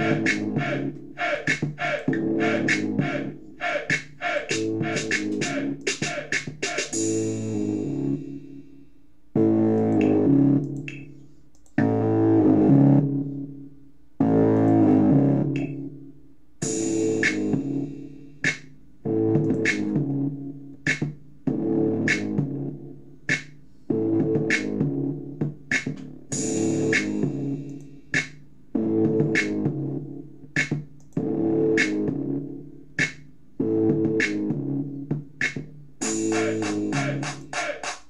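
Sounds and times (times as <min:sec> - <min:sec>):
synthesizer chord phrase: 0:00.0 - 0:03.7, 0:36.0 - 0:37.6
drum machine hits: 0:00.0 - 0:07.2, 0:16.6 - 0:17.8, 0:20.9 - 0:22.5, 0:24.2 - 0:28.4, 0:29.0 - 0:29.7, 0:30.6 - 0:31.0, 0:35.1 - 0:38.0.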